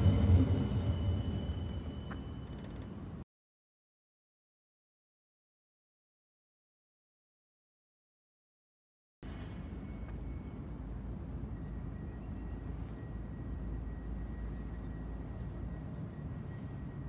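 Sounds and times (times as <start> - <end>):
thin steady whine: 0.0 - 3.2, 9.3 - 17.0
tram rumbling: 0.0 - 3.2, 9.2 - 17.0.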